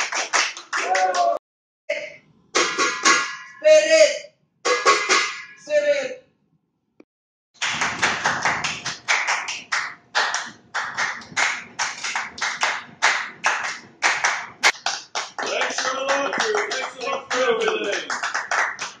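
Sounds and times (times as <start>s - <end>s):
people clapping in rhythm: 0.0s - 1.4s, 7.6s - 19.0s.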